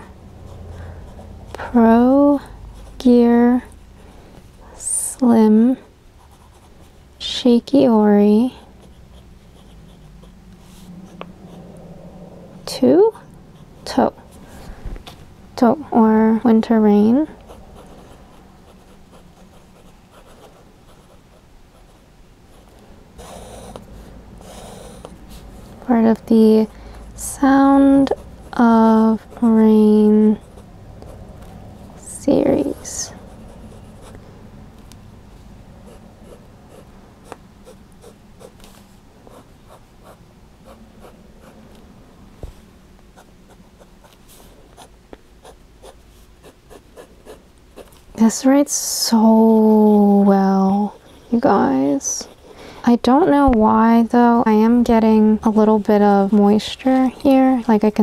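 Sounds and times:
fountain pen scratching paper: 0:17.5 - 0:23.8.

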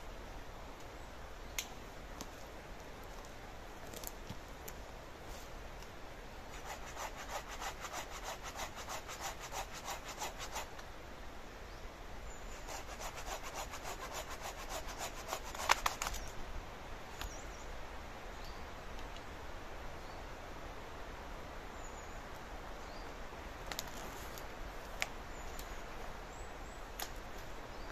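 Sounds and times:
hand saw cutting wood: 0:06.5 - 0:10.7, 0:12.7 - 0:16.0.

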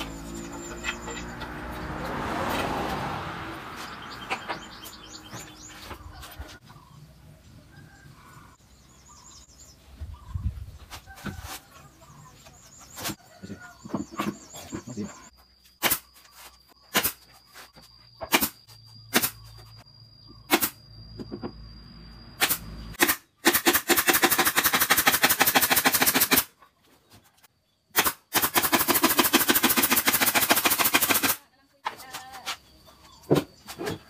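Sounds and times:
pneumatic nail gun firing: 0:15.8 - 0:16.0, 0:16.9 - 0:17.2, 0:18.3 - 0:19.4, 0:20.5 - 0:20.8, 0:22.4 - 0:26.5, 0:27.9 - 0:31.4.

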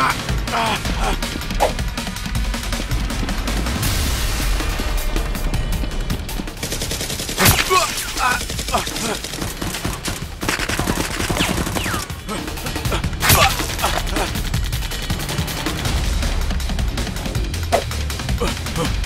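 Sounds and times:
rapid gunfire bursts: 0:06.5 - 0:17.4.

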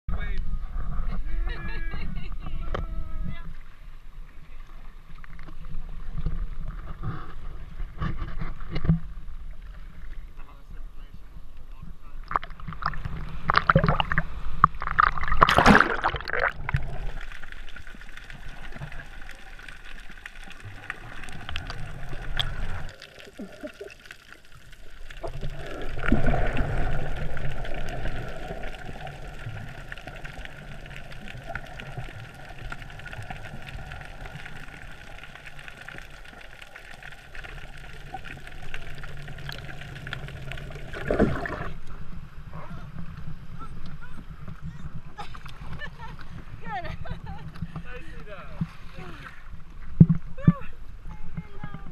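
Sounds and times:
muffled underwater wash: 0:00.1 - 0:51.9
loud splashes: 0:12.8 - 0:17.4.

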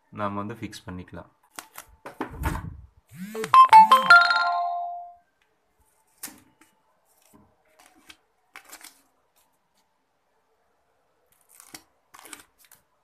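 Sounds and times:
electronic ringtone chime: 0:03.2 - 0:05.2.

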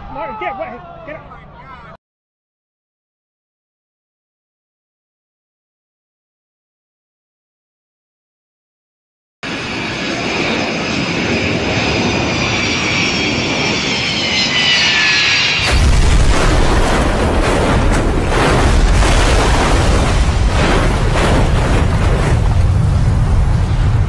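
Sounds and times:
aircraft engine whine: 0:09.4 - 0:15.8, 0:22.2 - 0:24.0
deep rumbling noise: 0:15.6 - 0:24.0.

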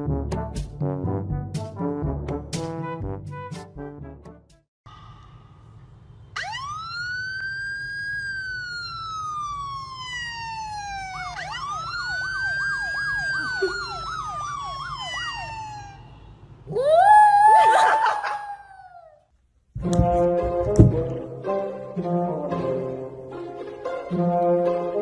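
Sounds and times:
police siren wailing: 0:06.4 - 0:18.4.

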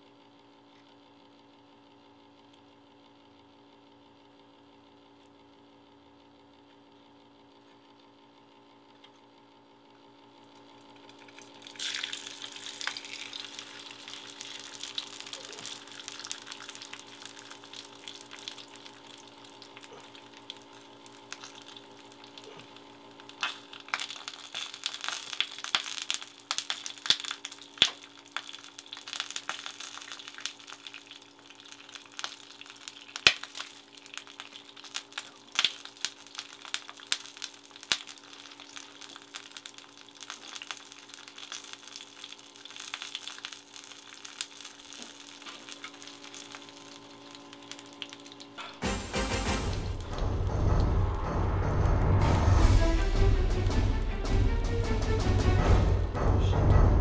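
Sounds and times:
fish frying in oil: 0:10.8 - 0:50.3.

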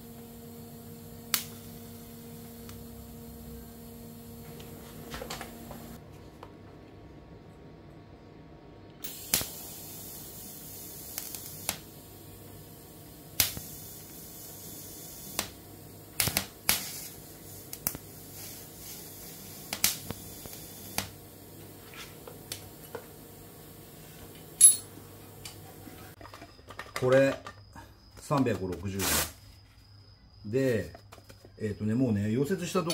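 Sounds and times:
faint steady hum: 0:00.0 - 0:28.5
tools clicking and tapping: 0:24.6 - 0:24.9.

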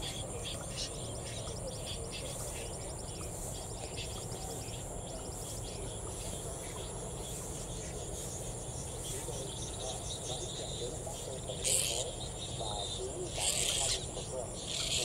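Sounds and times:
crickets trilling: 0:00.0 - 0:15.0
high-pitched insect drone: 0:00.0 - 0:15.0.

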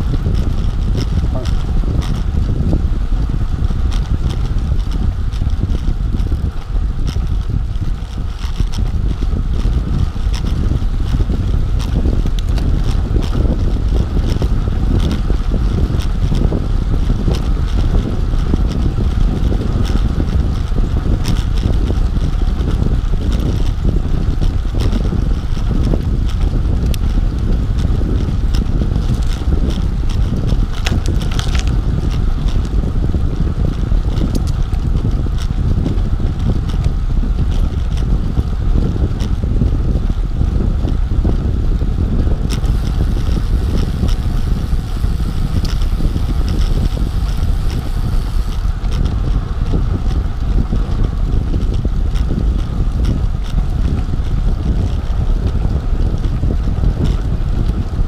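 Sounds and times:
bike tyres rolling on concrete: 0:00.0 - 0:58.0
wind rushing over microphone: 0:00.0 - 0:58.0
faint ticks: 0:25.8 - 0:32.8, 0:34.2 - 0:35.6, 0:42.5 - 0:49.3.

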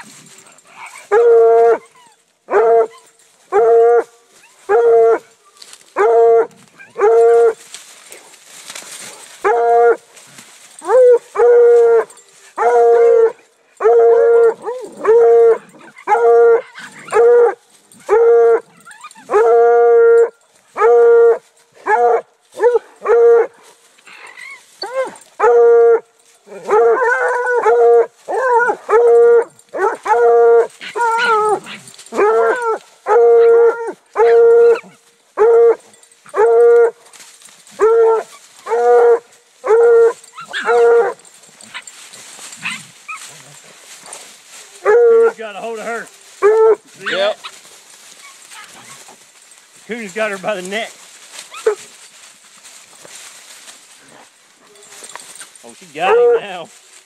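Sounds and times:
wavering hound voices: 0:26.4 - 0:34.8, 0:44.7 - 0:47.6, 0:54.7 - 0:56.8
hound bawling: 0:29.8 - 0:36.9, 0:37.8 - 0:41.9.

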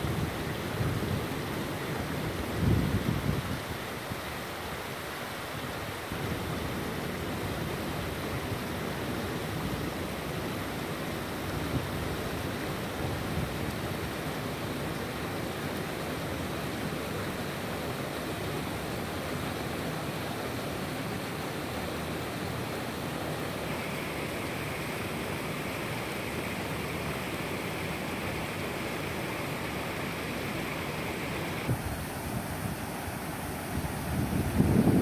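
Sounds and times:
water rushing down spillway: 0:00.0 - 0:35.0
high hiss: 0:18.7 - 0:35.0.

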